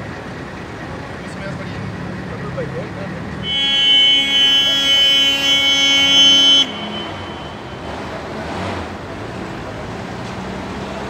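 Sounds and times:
minibus engine running: 0.0 - 11.0
vehicle horn blast: 3.4 - 8.0.

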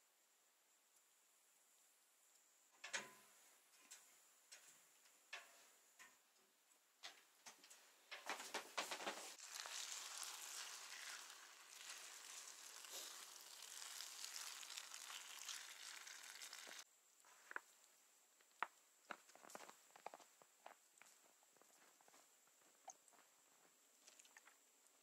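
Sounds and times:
food sizzling in a frying pan: 9.3 - 16.8.

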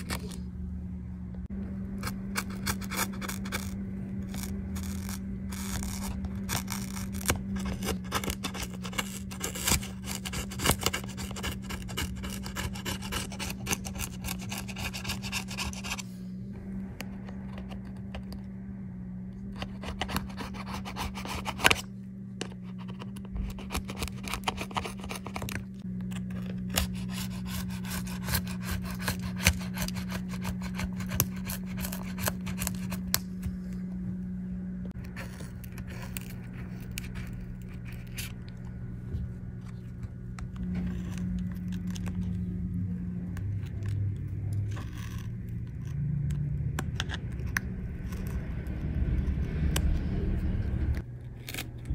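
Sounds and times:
low hum: 0.0 - 51.9
metal tool scraping adhesive: 2.0 - 16.0.

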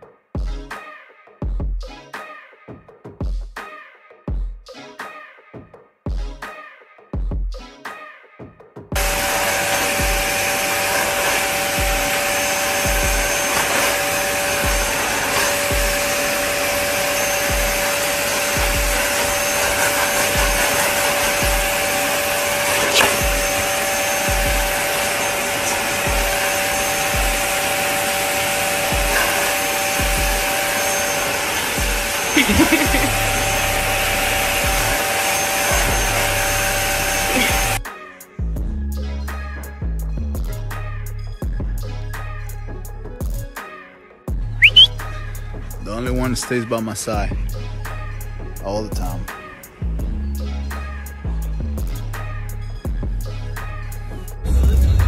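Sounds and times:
vacuum cleaner running: 9.0 - 37.8.

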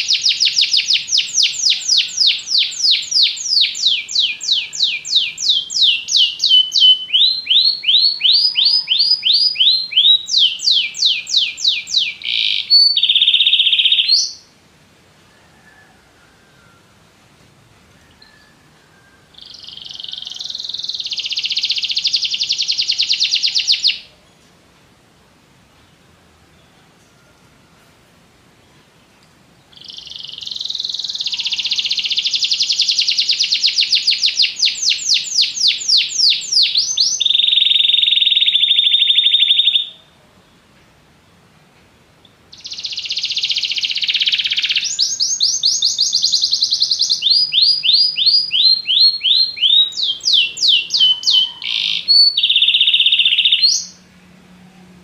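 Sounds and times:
canary singing trills: 0.0 - 14.5, 18.0 - 24.4, 29.6 - 40.2, 42.2 - 54.1.

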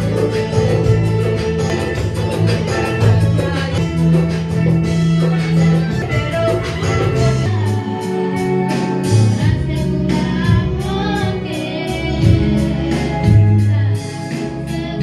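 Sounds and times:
hand drums: 0.0 - 11.2
bass line: 0.0 - 15.0
guitars: 0.0 - 15.0
keyboard: 0.0 - 15.0
steady drum beat: 0.0 - 15.0
young female voices singing: 9.1 - 15.0.

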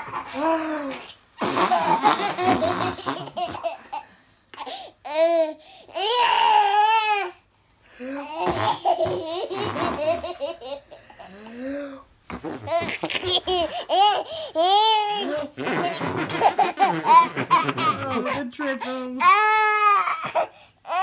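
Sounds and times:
toddler laughing: 8.4 - 11.2, 12.6 - 18.4.

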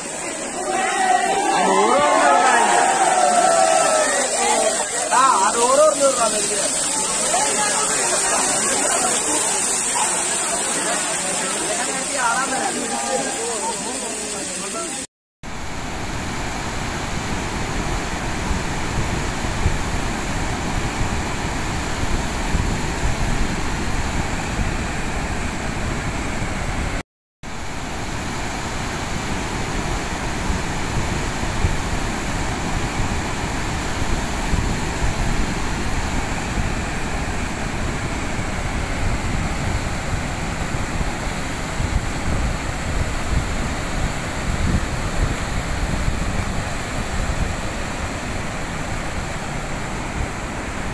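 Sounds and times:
floodwater rushing: 0.0 - 50.9.

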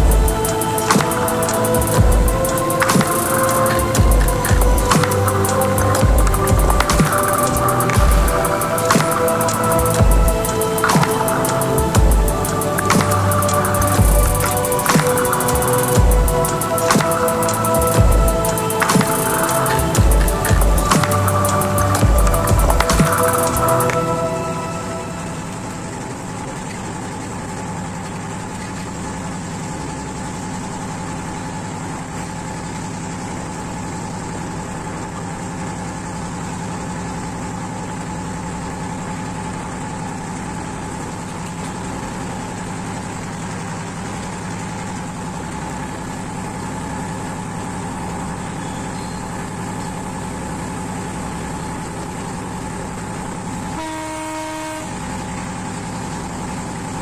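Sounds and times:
diesel train engine drone: 0.0 - 57.0
wheels rumbling on rails: 0.0 - 57.0
train horn blast: 53.8 - 55.2.

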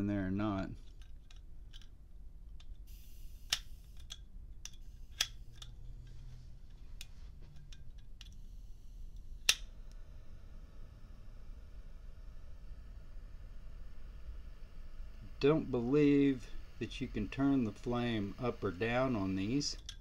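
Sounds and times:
torch flame hissing: 2.9 - 4.0, 8.5 - 19.8
metallic lighter clicks: 3.4 - 5.7, 9.4 - 9.7.

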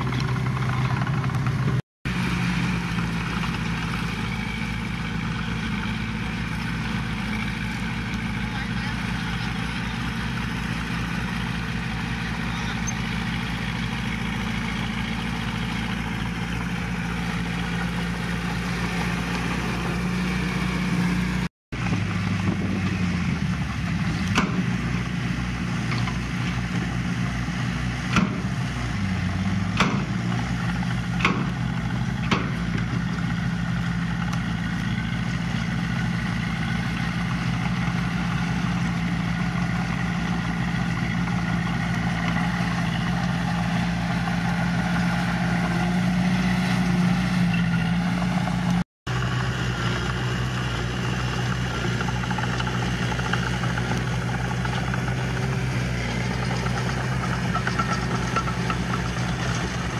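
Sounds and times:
diesel engine running: 0.0 - 59.9
sharp knocks: 29.8 - 30.2, 31.2 - 31.6, 32.2 - 32.6.

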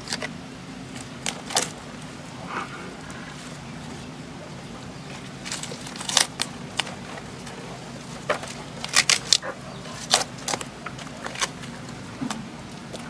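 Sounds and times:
fibres cracking and rustling: 0.0 - 2.0, 5.1 - 13.0.

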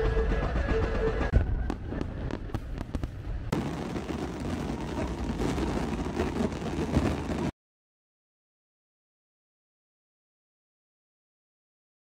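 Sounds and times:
fireworks bangs: 1.3 - 7.5
fireworks crackling pops: 1.7 - 7.5.

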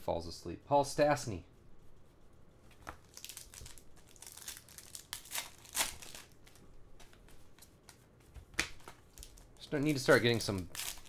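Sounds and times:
cards rustling in the hand: 2.7 - 11.0.

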